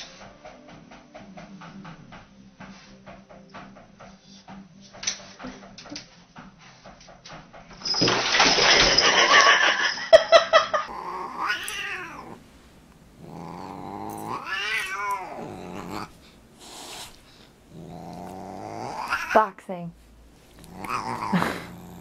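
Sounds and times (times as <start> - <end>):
cats fighting yowl: 10.9 - 12.4, 13.1 - 19.5, 20.5 - 22.0
cat yowling rising and falling: 11.0 - 12.4, 14.1 - 16.1.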